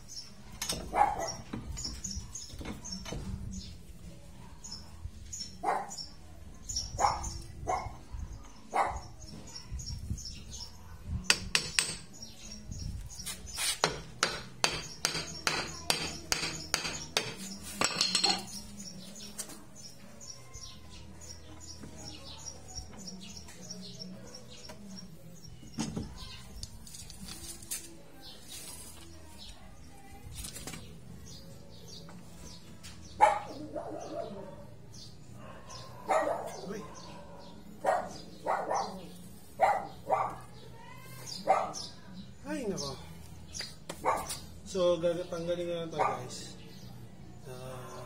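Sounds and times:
hammer striking metal: 0:11.3 - 0:12.1, 0:13.8 - 0:18.5.

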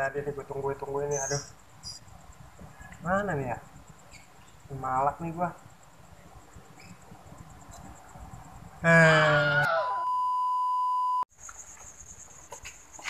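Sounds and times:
high test tone beep: 0:10.0 - 0:11.2.

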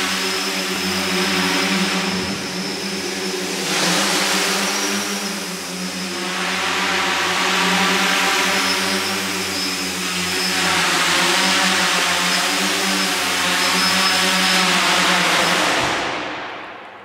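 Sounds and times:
drone motors whirring: 0:00.0 - 0:16.3.

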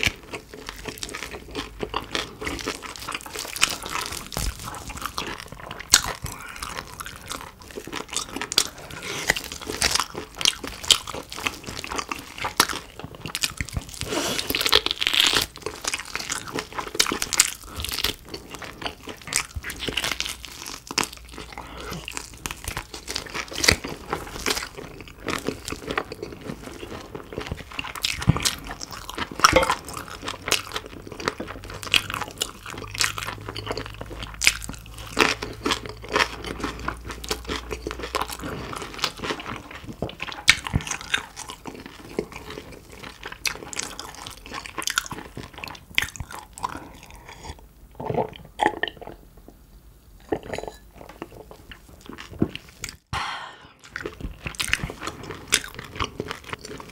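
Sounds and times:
chewing crispy pork skin: 0:00.0 - 0:49.2, 0:53.8 - 0:56.9
wet mouth sounds: 0:50.2 - 0:56.9.

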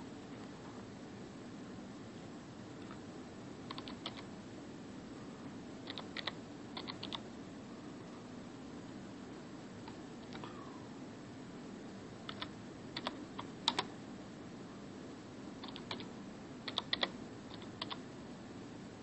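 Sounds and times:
steady low hum: 0:00.0 - 0:19.0
computer keyboard typing: 0:03.6 - 0:04.3, 0:05.8 - 0:07.2, 0:09.8 - 0:10.5, 0:12.2 - 0:13.9, 0:15.6 - 0:18.0.

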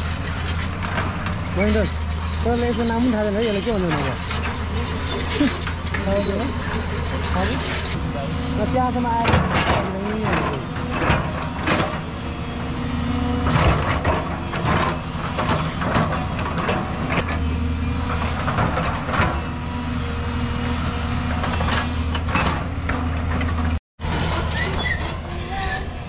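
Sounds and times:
bucket scraping soil and rock: 0:00.0 - 0:08.0
diesel excavator engine running: 0:00.0 - 0:26.0.

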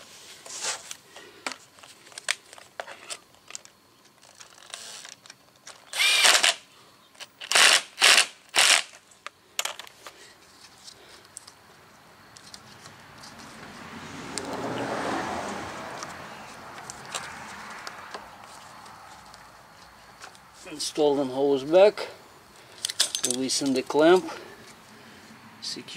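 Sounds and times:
cordless drill motor running: 0:05.9 - 0:06.6
tools clicking: 0:22.8 - 0:23.8.

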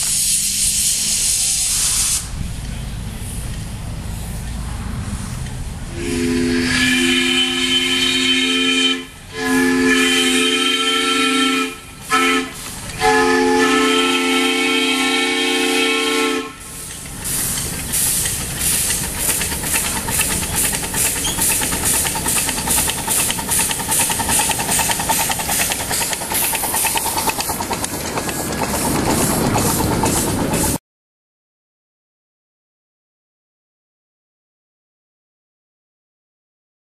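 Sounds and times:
steam hissing: 0:00.0 - 0:30.8
steam locomotive chuffing: 0:00.0 - 0:30.8
steam whistle: 0:05.9 - 0:16.8.

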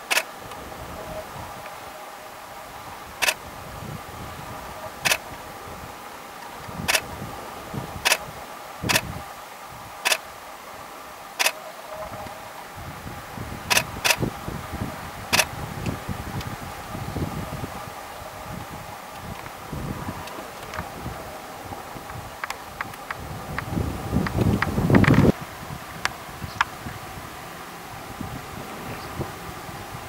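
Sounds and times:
steady hum: 0:00.0 - 0:30.0
camera shutter clicking: 0:00.1 - 0:00.3, 0:13.7 - 0:14.2.

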